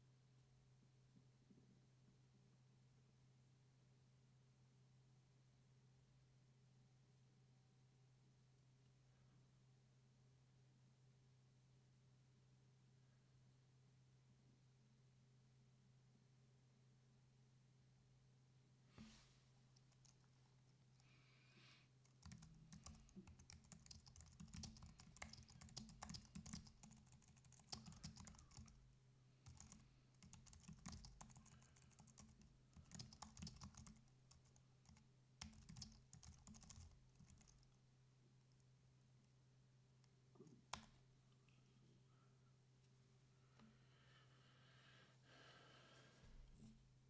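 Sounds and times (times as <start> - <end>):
typing on computer keyboard: 22.0 - 28.8, 29.4 - 37.7.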